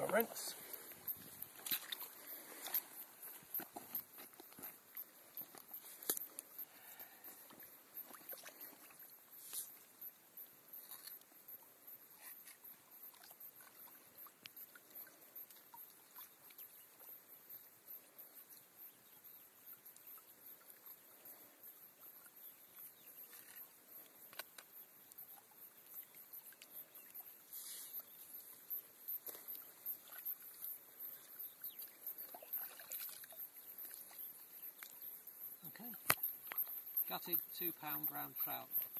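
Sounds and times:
water splashing and trickling: 0.0 - 18.3, 19.1 - 38.9.

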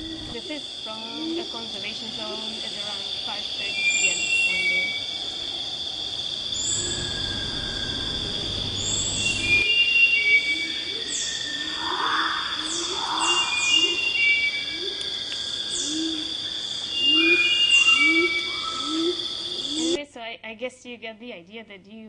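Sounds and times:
bird and animal calls: 0.0 - 20.0
high insect drone: 0.0 - 20.0
low rumble: 6.7 - 9.6.

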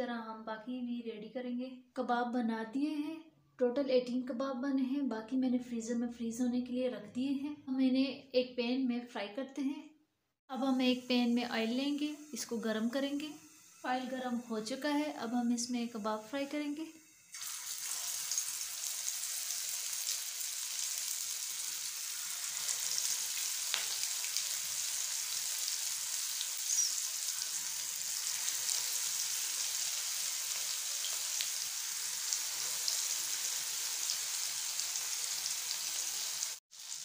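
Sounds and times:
food sizzling in hot oil: 10.6 - 37.0.

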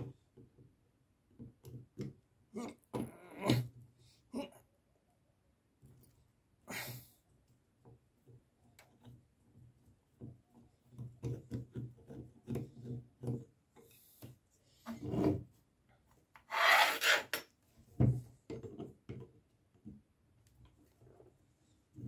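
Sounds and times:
scraping rub: 16.5 - 17.4.

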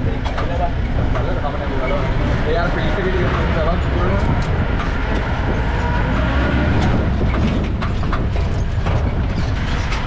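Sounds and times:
jeep engine and road rumble: 0.0 - 10.0
body knocks and rattles: 6.8 - 10.0.

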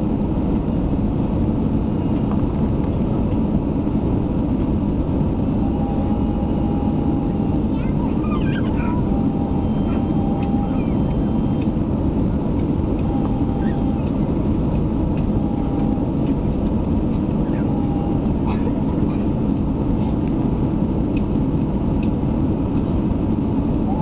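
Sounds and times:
airplane cabin engine roar: 0.0 - 24.0.

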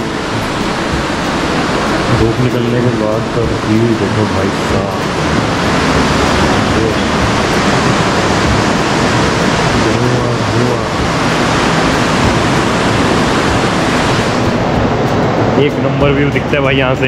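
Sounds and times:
whitewater rapids rushing: 0.0 - 17.0.

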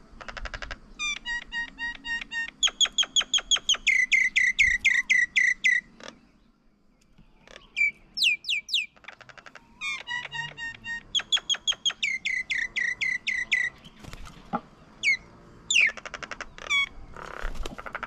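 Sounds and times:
bird calling sharp sweeping notes: 1.0 - 6.0, 7.5 - 9.0, 9.6 - 14.1, 15.0 - 18.0.

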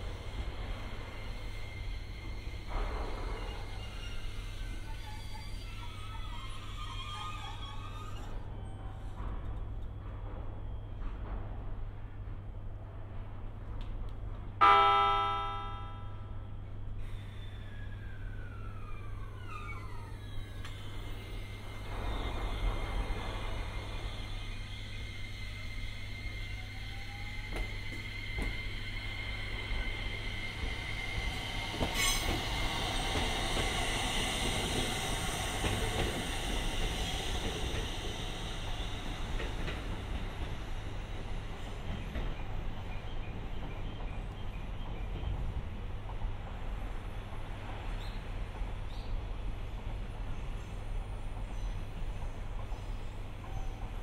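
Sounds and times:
train wheels whining and rolling: 0.0 - 54.0
faint whine sliding down: 17.0 - 42.0.

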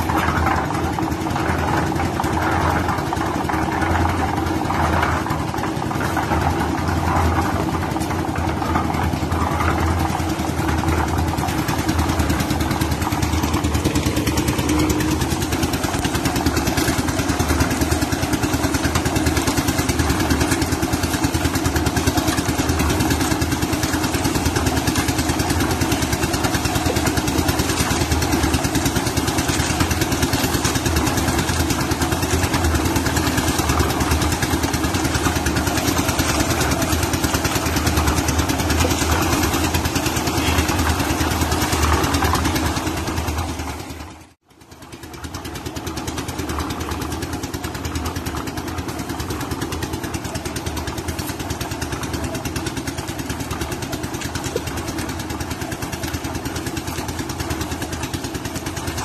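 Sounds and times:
concrete mixer running: 0.0 - 59.0.

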